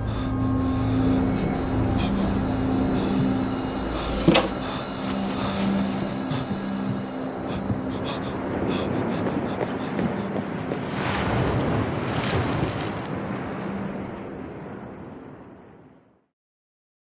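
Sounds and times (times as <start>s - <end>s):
faint low drone: 0.0s - 12.1s
noisy wash: 0.0s - 15.7s.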